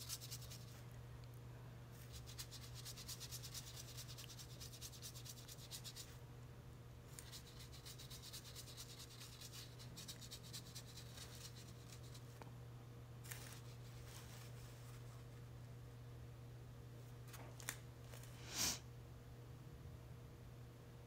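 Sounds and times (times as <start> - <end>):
paintbrush scrubbing on paper: 0.0 - 0.8, 2.0 - 6.2, 7.1 - 12.3.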